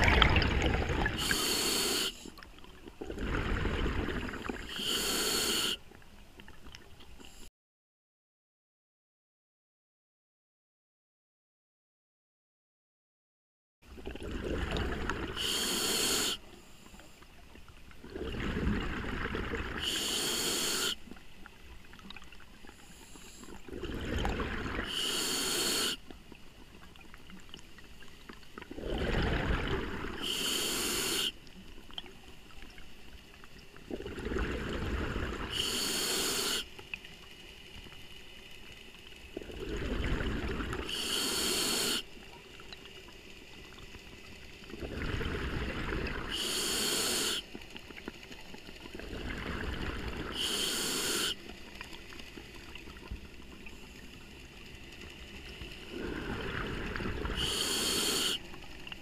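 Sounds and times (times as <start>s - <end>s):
exhaled bubbles rushing: 0.0s - 1.4s, 2.7s - 4.7s, 14.0s - 15.4s, 18.0s - 19.9s, 23.6s - 24.9s, 28.6s - 30.2s, 33.8s - 35.5s, 39.4s - 40.9s, 44.7s - 46.3s, 48.9s - 50.4s, 55.8s - 57.6s
regulator inhale hiss: 1.1s - 2.3s, 4.6s - 5.8s, 15.4s - 17.2s, 19.8s - 21.0s, 22.7s - 23.6s, 24.8s - 26.0s, 30.2s - 31.4s, 35.4s - 36.7s, 40.8s - 42.1s, 46.3s - 47.5s, 50.3s - 51.4s, 57.2s - 58.6s.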